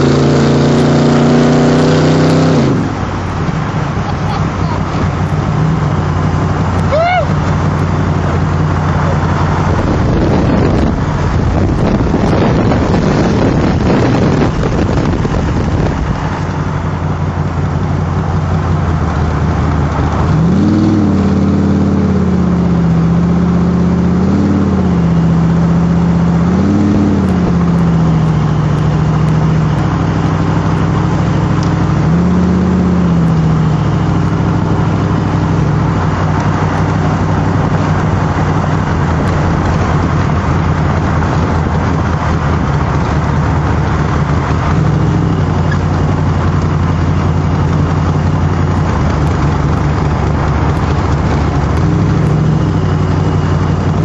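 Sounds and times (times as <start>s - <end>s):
car engine revving: 0.0s - 54.0s
wind rush: 8.2s - 17.1s, 35.4s - 54.0s.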